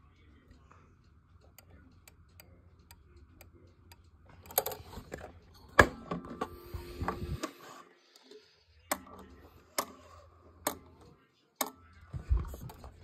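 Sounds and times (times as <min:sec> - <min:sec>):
clock ticking softly: 0:00.0 - 0:04.9.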